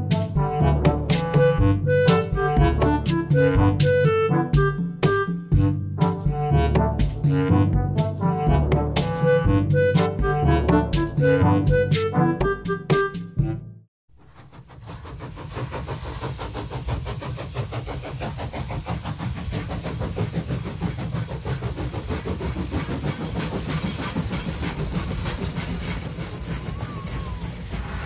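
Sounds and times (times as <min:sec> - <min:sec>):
steam train chugging: 0:00.0 - 0:07.3, 0:14.2 - 0:28.0
hissing steam: 0:14.2 - 0:28.0.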